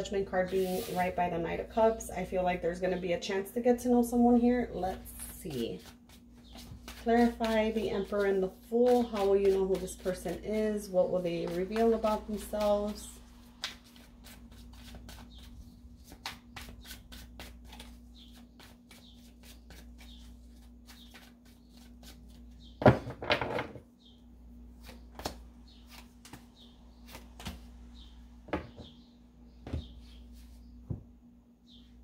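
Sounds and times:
cards being shuffled: 5.5 - 8.3, 16.0 - 22.5.

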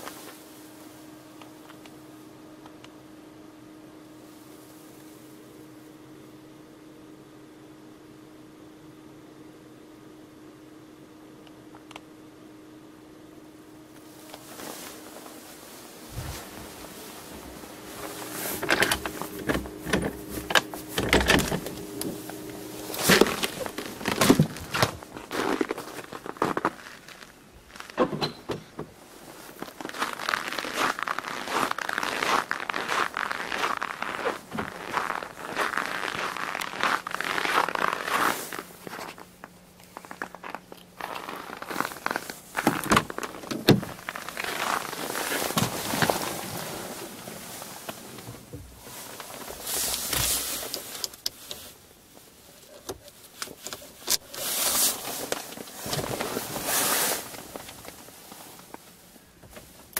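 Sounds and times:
footsteps on snow: 14.0 - 28.0, 29.0 - 50.9.

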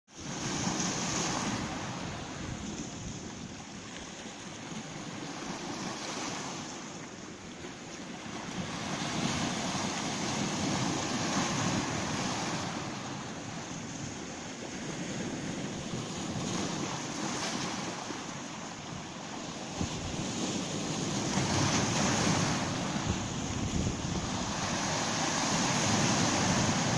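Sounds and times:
waves washing over pebbles: 19.5 - 26.9.

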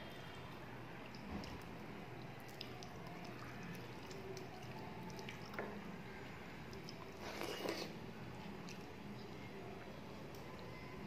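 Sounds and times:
wet squishes of mixing food: 0.2 - 10.8
chewing: 2.3 - 5.8, 6.7 - 8.9.

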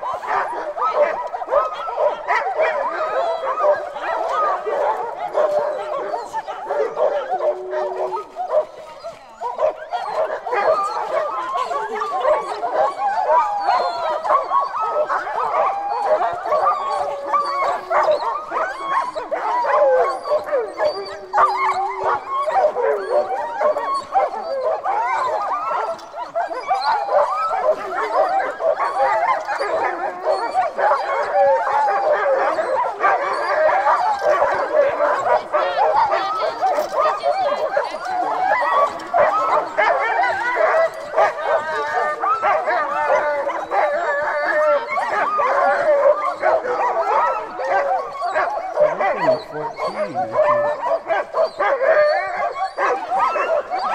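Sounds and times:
dogs yelping whining and howling: 0.0 - 53.9.

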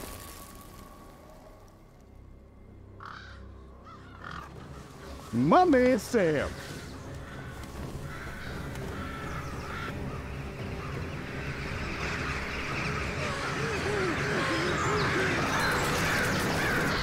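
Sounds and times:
crows cawing: 3.0 - 5.4, 6.4 - 17.0.

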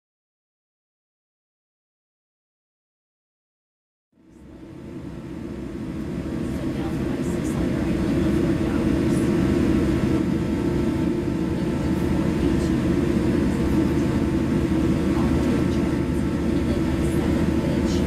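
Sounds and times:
airliner cabin rumble: 4.2 - 18.0.

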